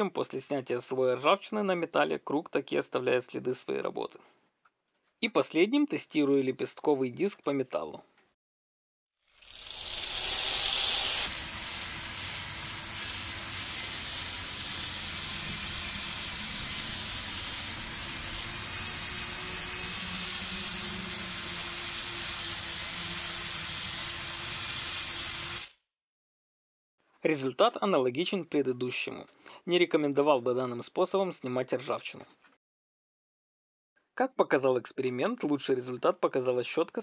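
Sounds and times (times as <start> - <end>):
angle grinder sanding steel: 9.4 - 25.7.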